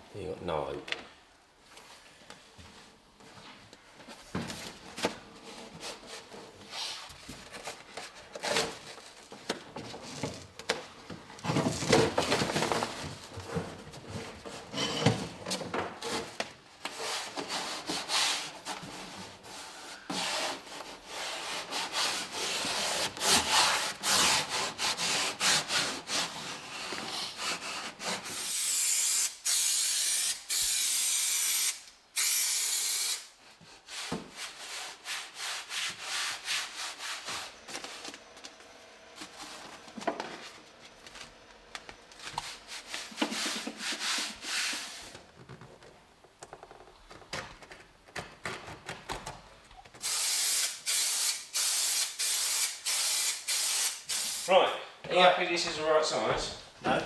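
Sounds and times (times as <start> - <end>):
spray hiss: 28.4 - 33.3, 50.0 - 54.5.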